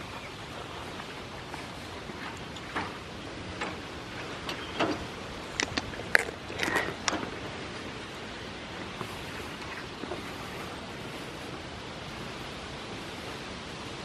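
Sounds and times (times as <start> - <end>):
steady outdoor hiss: 0.0 - 14.0.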